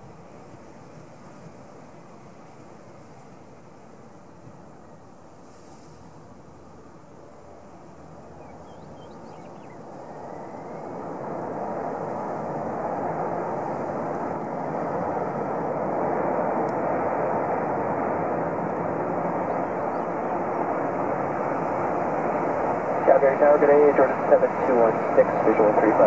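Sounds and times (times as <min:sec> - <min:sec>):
jet engines roaring: 0:06.6 - 0:26.0.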